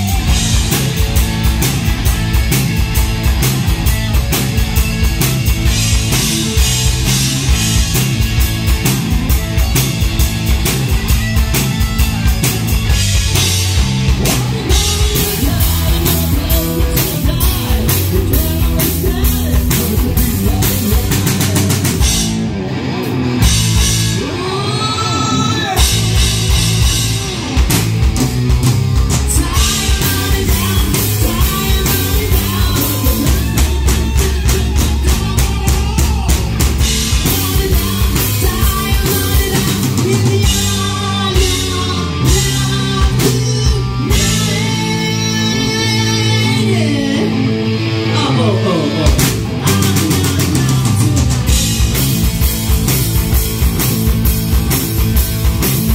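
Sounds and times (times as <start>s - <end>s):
live rock band playing: 0.0s - 55.9s
man singing: 14.2s - 22.0s, 24.2s - 26.5s, 29.2s - 51.6s.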